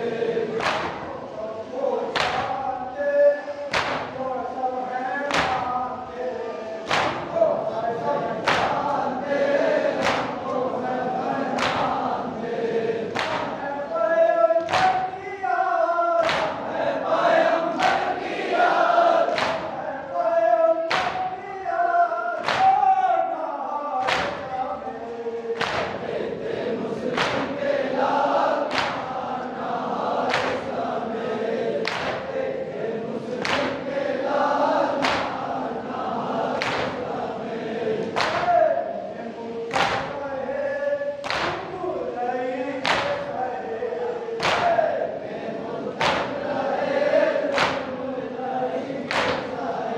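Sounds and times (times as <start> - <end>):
men chanting in unison: 0.0 - 49.9
hands slapping chests: 0.6 - 1.1, 2.1 - 2.6, 3.7 - 4.2, 5.3 - 5.8, 6.9 - 7.3, 8.4 - 9.0, 9.9 - 10.6, 11.5 - 12.0, 13.1 - 13.6, 14.6 - 15.1, 16.2 - 16.7, 17.7 - 18.2, 19.2 - 19.8, 20.9 - 21.3, 22.4 - 22.8, 24.0 - 24.5, 25.6 - 26.1, 27.1 - 27.6, 28.6 - 29.5, 30.2 - 30.7, 31.8 - 32.3, 33.4 - 33.8, 34.9 - 35.6, 36.6 - 37.1, 38.0 - 38.5, 39.7 - 40.2, 41.2 - 41.7, 42.8 - 43.3, 44.4 - 44.8, 45.9 - 46.5, 47.4 - 48.0, 49.0 - 49.6.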